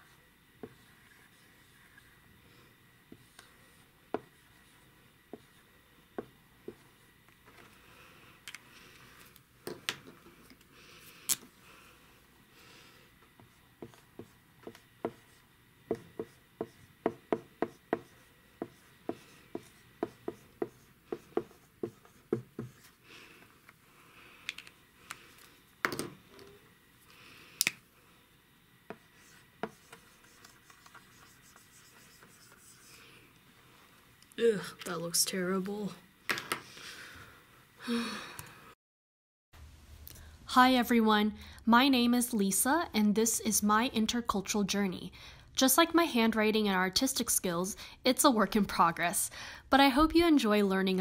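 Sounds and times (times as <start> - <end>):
marker rubbing strokes: 0.0 - 2.2, 13.4 - 23.0, 28.9 - 33.1.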